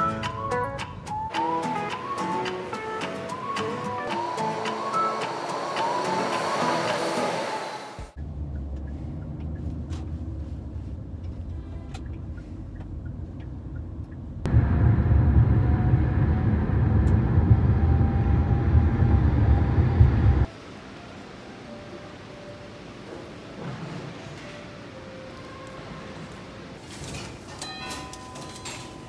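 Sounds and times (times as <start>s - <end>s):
car road rumble: 5.9s - 20.5s.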